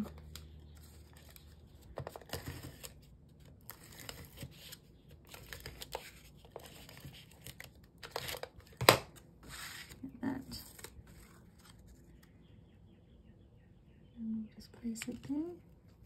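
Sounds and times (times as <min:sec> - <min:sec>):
stiff paper rustling and sliding: 0:09.4 - 0:12.2.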